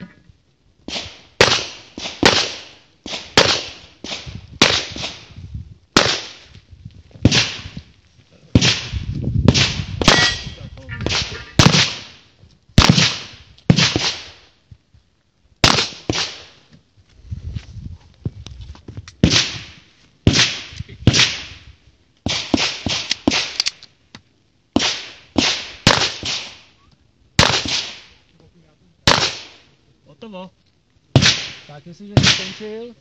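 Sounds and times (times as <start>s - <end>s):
pistol shots with echo: 0.9s - 5.2s, 6.0s - 6.4s, 9.5s - 12.2s, 12.8s - 14.4s, 15.6s - 16.5s, 24.8s - 26.6s, 27.4s - 28.1s, 29.1s - 29.6s, 31.2s - 32.7s.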